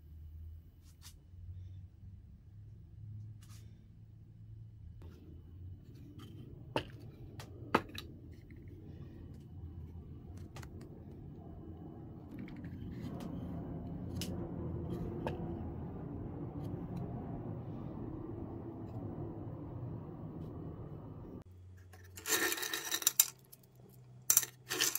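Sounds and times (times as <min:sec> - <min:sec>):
low hum: 0:01.3 - 0:22.1
screws rattling: 0:22.0 - 0:24.9.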